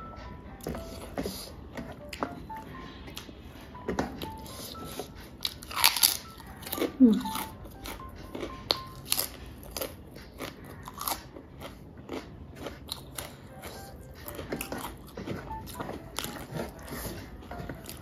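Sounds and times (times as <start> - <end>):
chewing crisp chip: 4.2 - 18.0.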